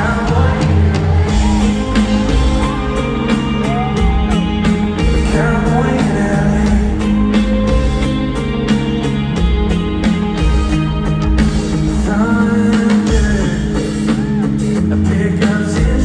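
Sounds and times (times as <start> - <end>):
man singing: 0.0 - 1.9, 2.7 - 8.0, 11.8 - 16.0
live pop-rock band: 0.0 - 16.0.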